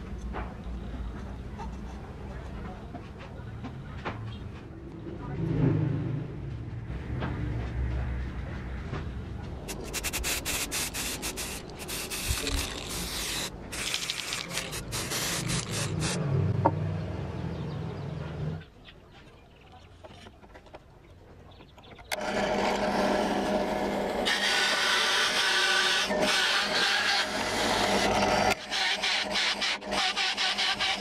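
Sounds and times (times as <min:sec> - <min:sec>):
spray can hissing: 0:09.7 - 0:16.2
drill press running: 0:22.1 - 0:31.0.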